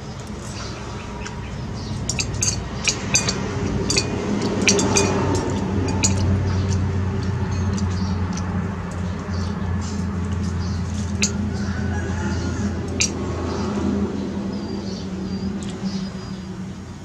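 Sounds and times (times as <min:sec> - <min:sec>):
steady low hum: 0:00.0 - 0:17.0
metal utensils clinking on plate: 0:02.0 - 0:09.1, 0:10.6 - 0:11.8, 0:12.9 - 0:13.2.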